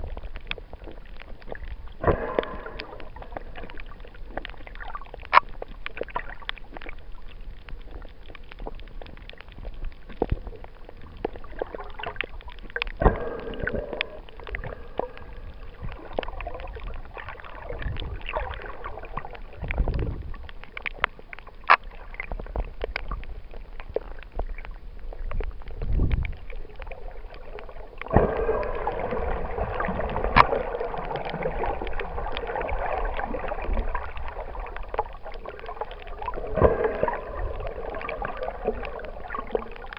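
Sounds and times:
bubbling gurgle: 0.0 - 39.9
low water surges: 0.0 - 39.9
underwater clicks and crackles: 0.0 - 39.9.

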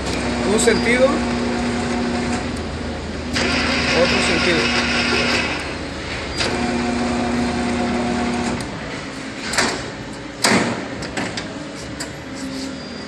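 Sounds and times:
lathe motor humming: 0.0 - 8.7.

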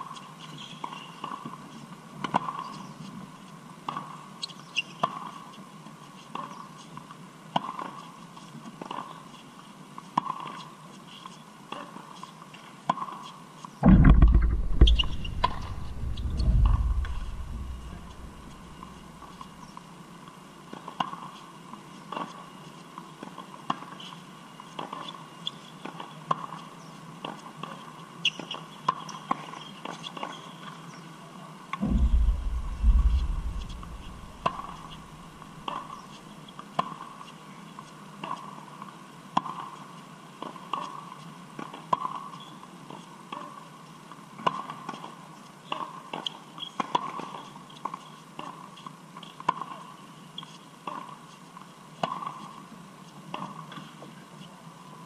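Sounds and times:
loud low rumble: 13.8 - 19.4, 31.8 - 35.6.

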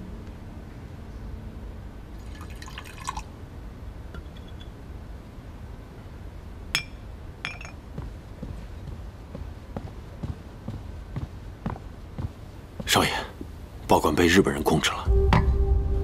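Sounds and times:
wine pouring into glass: 2.2 - 3.3
glass clinks: 6.8 - 7.8.

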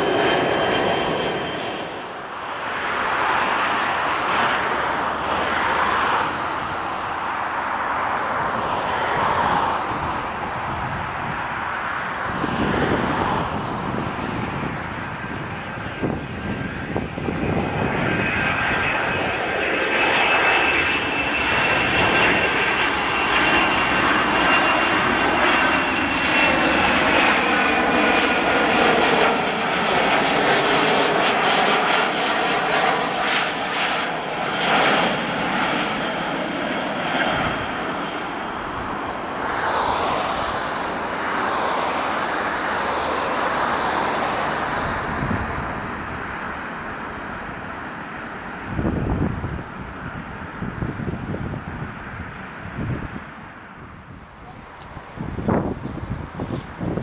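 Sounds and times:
jet engines roaring overhead: 0.0 - 57.0.

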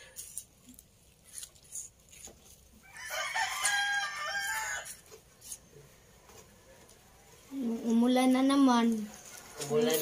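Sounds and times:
rooster crowing: 2.8 - 5.1.

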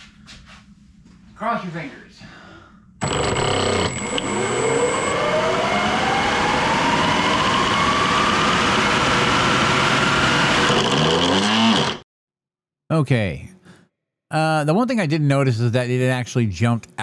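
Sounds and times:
electric fan motor whine: 3.0 - 12.0.

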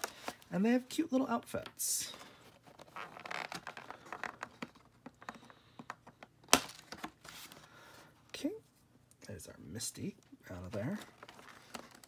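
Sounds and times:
plastic packaging crinkling: 10.8 - 12.0.

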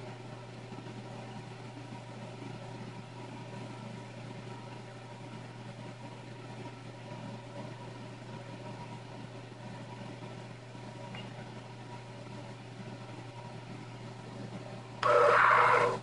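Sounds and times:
computer humming and hissing: 0.0 - 16.0.

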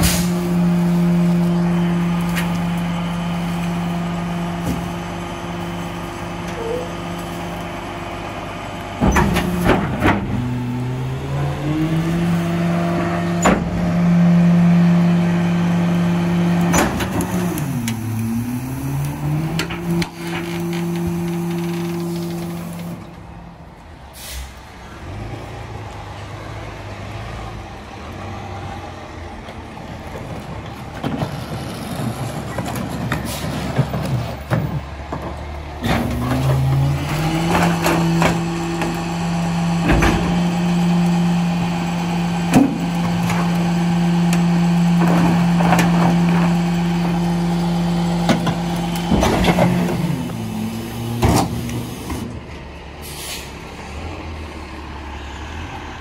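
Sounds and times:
garbage truck engine idling and revving: 0.0 - 56.0
trash cart banging: 8.9 - 10.7, 12.0 - 14.9, 16.4 - 18.1, 30.2 - 51.7.

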